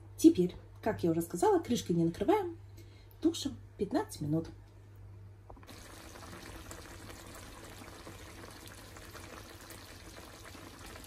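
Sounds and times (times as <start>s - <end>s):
sauce bubbling and popping: 5.6s - 11.0s.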